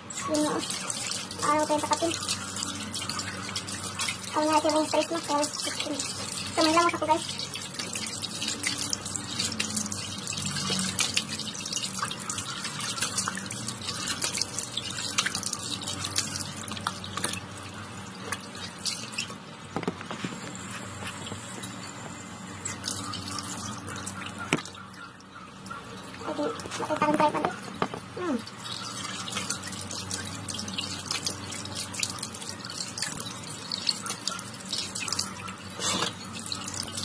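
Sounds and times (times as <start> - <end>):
splashing while washing face: 0.4 - 17.5.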